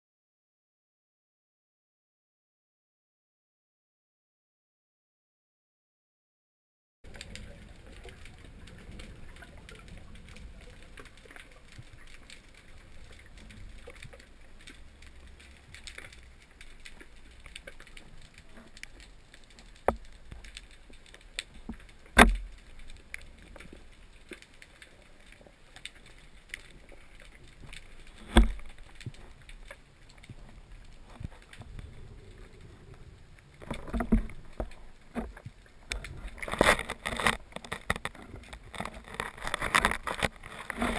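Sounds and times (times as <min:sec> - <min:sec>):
small clicks and crackles: 0:07.0 - 0:40.9
low underwater rumble: 0:26.3 - 0:36.5.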